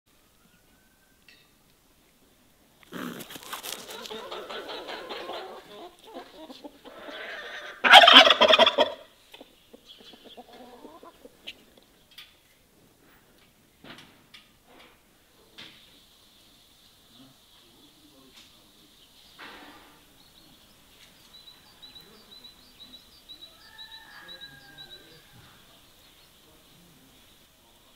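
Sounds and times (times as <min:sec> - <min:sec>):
poultry clucking and squawking: 0:02.8 - 0:12.0, 0:21.2 - 0:25.9
loud poultry call: 0:03.8 - 0:09.1, 0:23.4 - 0:25.7.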